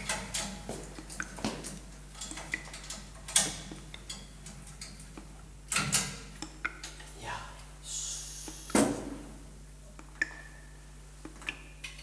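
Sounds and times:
metal locker door clicks and rattles: 0:00.0 - 0:00.7, 0:05.7 - 0:06.2
low steady hum: 0:00.0 - 0:12.0.

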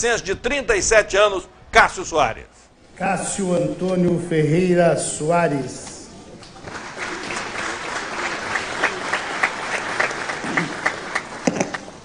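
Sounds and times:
crowd applauding: 0:06.4 - 0:12.0.

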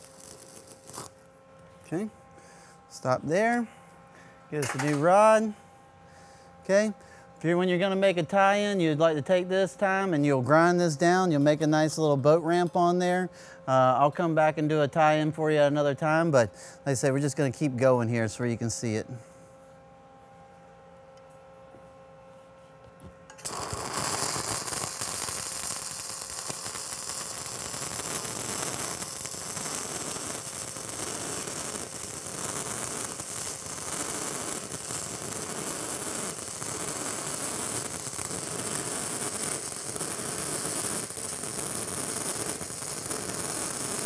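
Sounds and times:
welding arc crackling: 0:00.0 - 0:01.3, 0:23.4 - 0:44.0.

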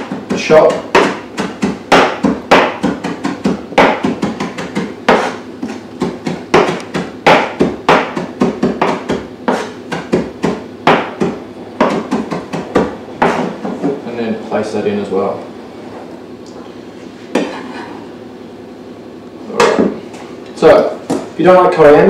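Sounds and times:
knife chopping on cutting board: 0:00.0 - 0:14.0.

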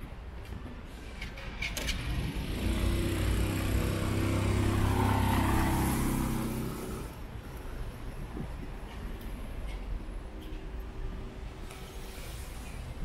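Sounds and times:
vehicle driving past: 0:02.0 - 0:07.2.

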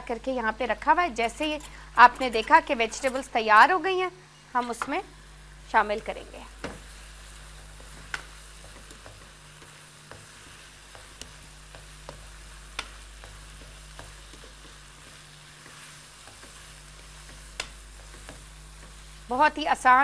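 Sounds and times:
food sizzling in a wok: 0:00.0 - 0:20.0
spatula clicking against pan: 0:10.9 - 0:14.8, 0:16.2 - 0:19.0.

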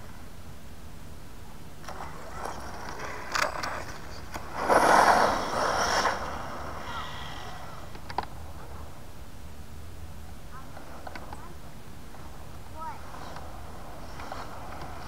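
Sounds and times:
tyre and drivetrain noise: 0:01.6 - 0:09.0, 0:10.1 - 0:15.0
rc truck launching on asphalt: 0:01.8 - 0:08.2.

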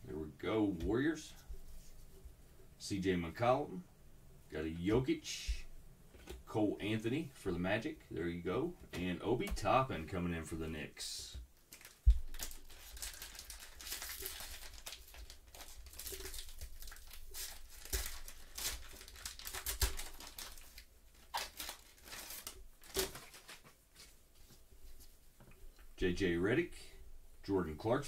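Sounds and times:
foil wrapper crinkling: 0:11.7 - 0:24.1.

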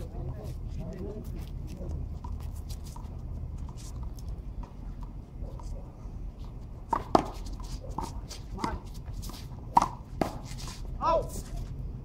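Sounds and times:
shoes scuffing on concrete: 0:06.4 - 0:11.8.

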